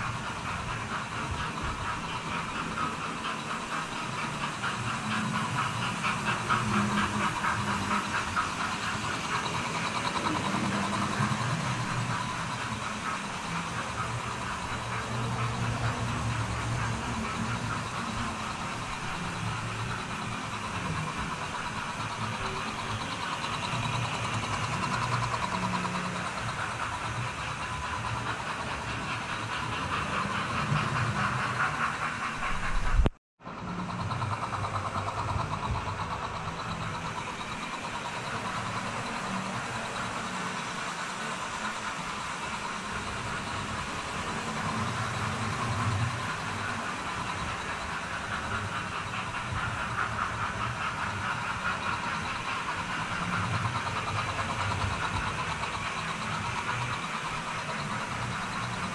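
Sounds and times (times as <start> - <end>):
wheels rattling over rails: 0.0 - 58.9.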